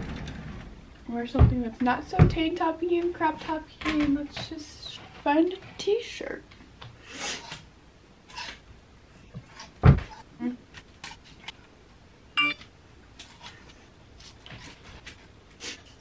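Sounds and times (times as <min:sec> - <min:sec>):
heavy thump: 0:09.8 - 0:10.1.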